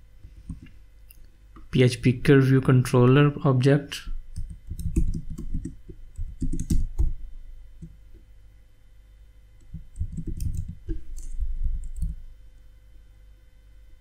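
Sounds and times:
keyboard keys clicking: 4.4s - 7.1s, 9.6s - 12.2s.

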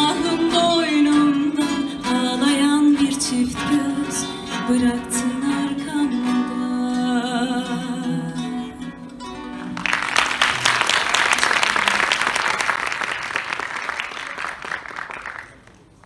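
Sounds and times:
acoustic guitar and oud: 0.0s - 10.7s
audience applause: 9.6s - 16.0s.

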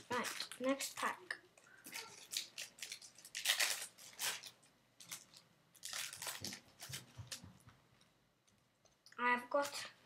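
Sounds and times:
foil packet crinkling: 0.0s - 7.4s.

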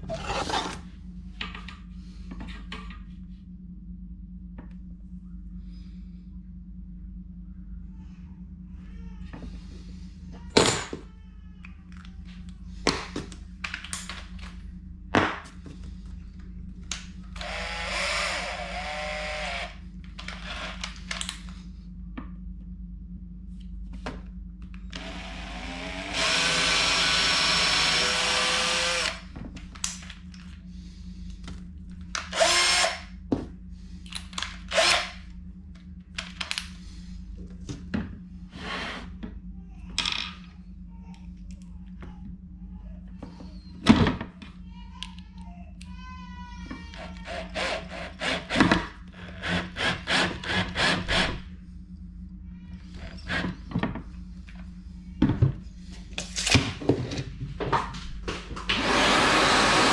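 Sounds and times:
cordless drill boring into board: 25.0s - 29.2s, 32.3s - 33.0s, 47.0s - 51.4s, 58.7s - 59.9s.

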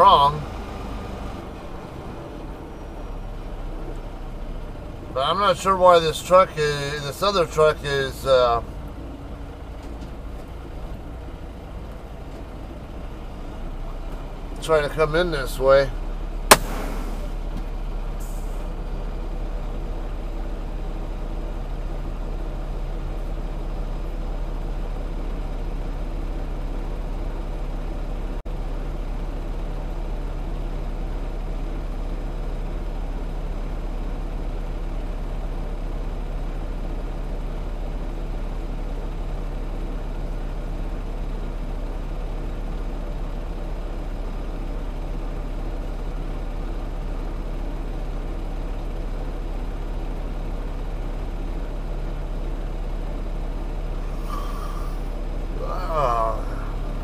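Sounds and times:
diesel engine idling: 0.0s - 57.0s
short air hiss: 16.5s - 17.4s.

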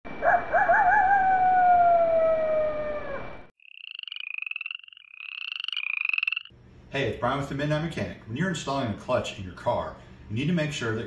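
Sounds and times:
wolf howling: 0.2s - 3.5s
frogs trilling: 3.6s - 6.6s.

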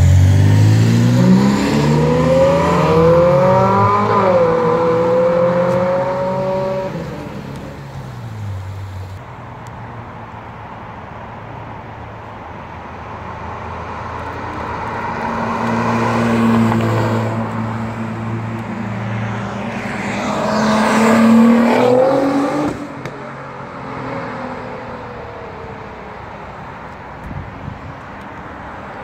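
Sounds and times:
sports car engine accelerating: 0.0s - 9.2s, 14.5s - 23.2s.

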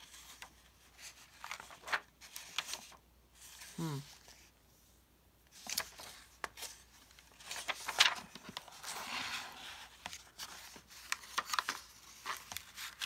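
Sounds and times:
book pages turning and rustling: 0.0s - 4.6s, 5.5s - 13.0s.

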